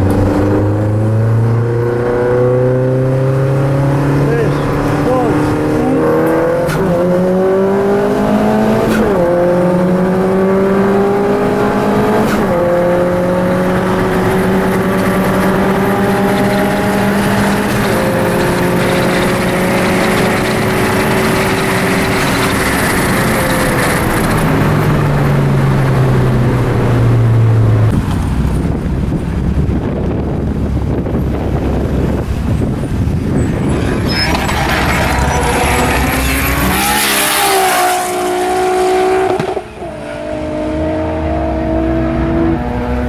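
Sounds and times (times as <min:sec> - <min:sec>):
car engine accelerating: 0:00.0 - 0:43.0
wind-like noise: 0:27.9 - 0:37.9.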